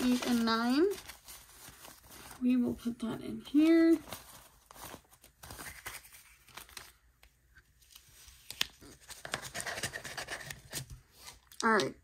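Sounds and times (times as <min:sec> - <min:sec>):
paper bills rustling: 0:00.0 - 0:02.6, 0:03.5 - 0:07.1.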